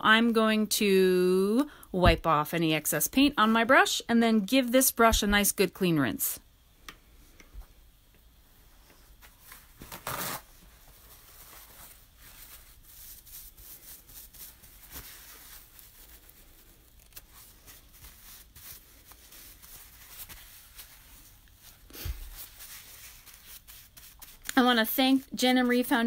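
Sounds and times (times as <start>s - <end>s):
tearing rustle: 9.8s - 10.5s.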